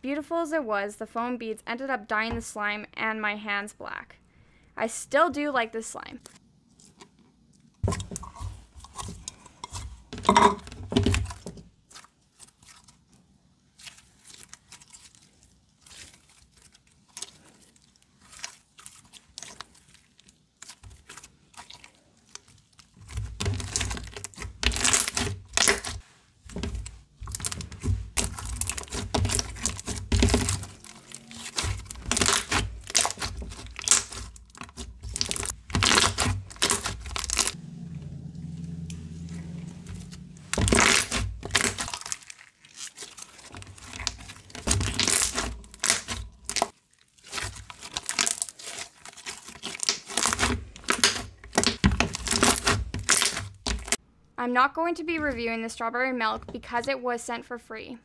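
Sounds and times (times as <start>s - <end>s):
hands squishing slime: 11.0s - 37.6s, 39.9s - 54.0s.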